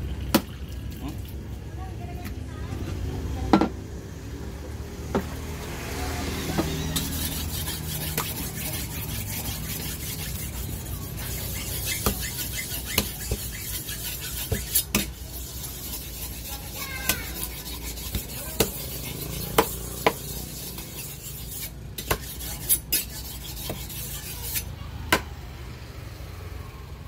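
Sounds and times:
knife scraping through fish: 6.5 - 24.7.

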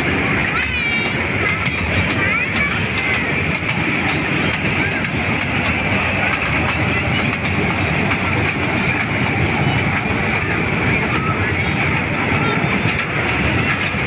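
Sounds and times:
toy train running whine: 0.0 - 14.0.

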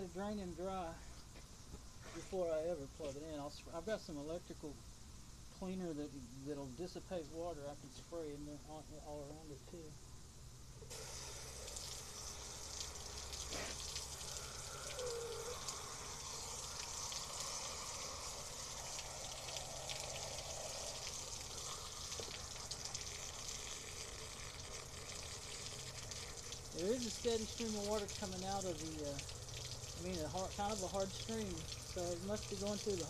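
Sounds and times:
hose water spraying and splashing: 10.8 - 33.0.

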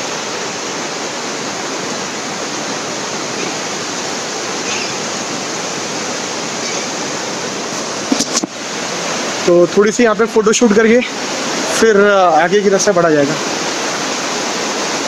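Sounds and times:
river rushing and splashing: 0.0 - 15.0.

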